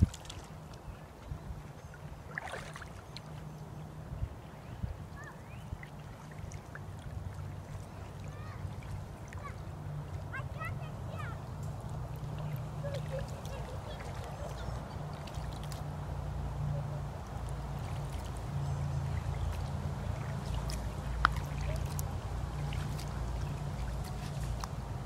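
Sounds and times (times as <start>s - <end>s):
wind rumbling on microphone: 0.0s - 2.3s, 4.0s - 9.2s
light ticks and splashes: 0.0s - 3.8s, 5.1s - 25.0s
small waves lapping: 0.0s - 25.0s.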